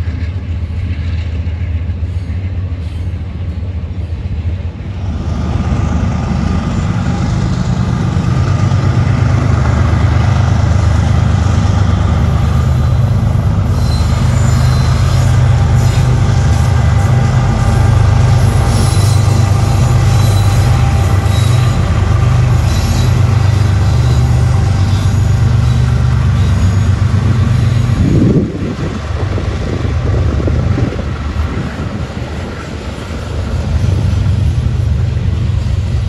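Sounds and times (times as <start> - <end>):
locomotive engines droning: 0.0 - 36.0
train wheels rolling on rails: 0.0 - 36.0
train wheels squealing: 0.1 - 4.3, 6.0 - 28.7.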